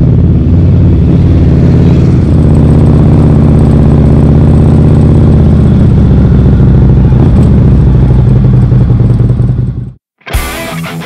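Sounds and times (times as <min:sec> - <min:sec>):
motorcycle engine running at low revs: 0:00.0 - 0:10.0.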